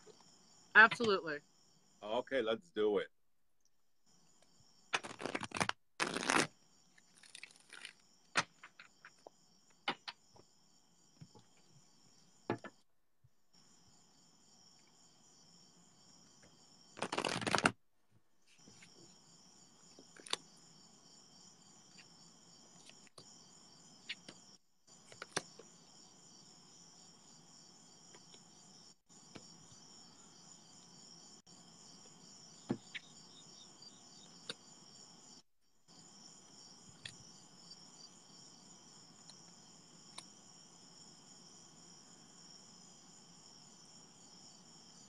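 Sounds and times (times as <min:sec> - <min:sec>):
cards riffling: 0:05.0 - 0:06.5, 0:17.0 - 0:17.7.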